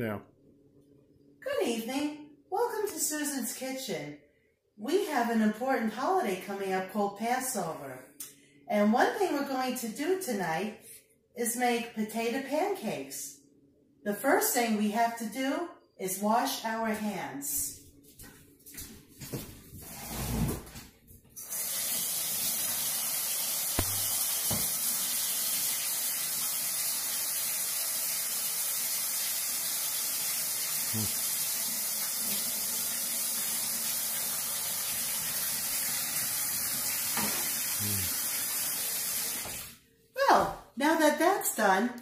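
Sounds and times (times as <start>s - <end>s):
tap water running: 21.4s - 39.8s.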